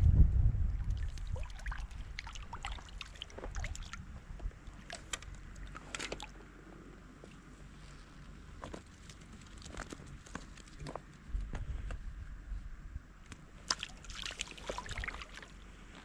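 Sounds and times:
low rumble: 0.0s - 5.8s
river water sloshing: 0.8s - 6.5s, 8.6s - 10.7s, 13.6s - 16.0s.

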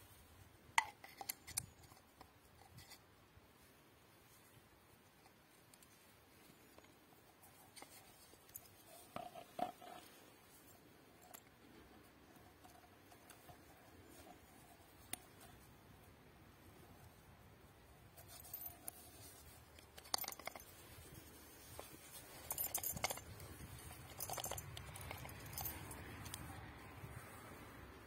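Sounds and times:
canteen handling clicks and rubs: 0.8s - 3.1s, 5.2s - 10.6s, 18.1s - 27.3s
leather strap buckled: 18.1s - 27.2s.

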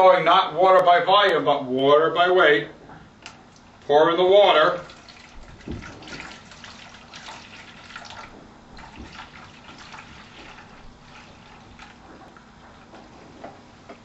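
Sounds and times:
water pouring and splashing: 4.6s - 12.9s.

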